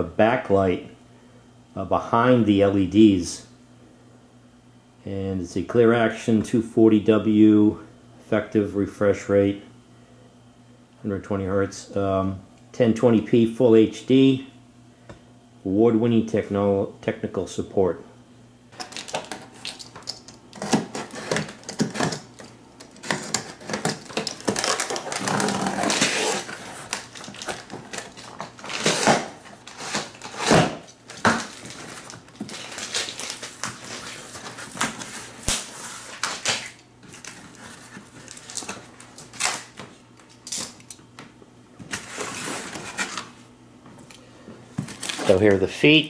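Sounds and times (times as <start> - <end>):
styrofoam packing rustling: 18.8 - 40.8, 41.9 - 43.4, 44.7 - 45.6.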